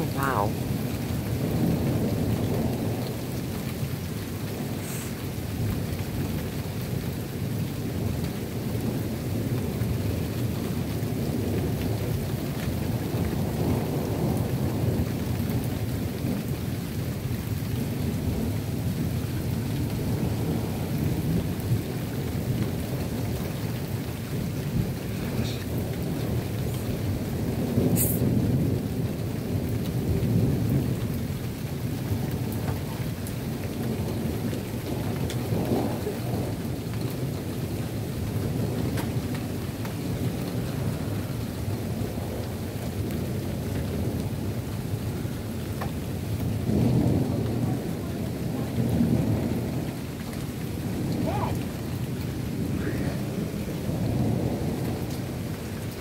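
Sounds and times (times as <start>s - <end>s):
falling rain: 0.0s - 56.0s
rolling thunder rumbling: 0.0s - 56.0s.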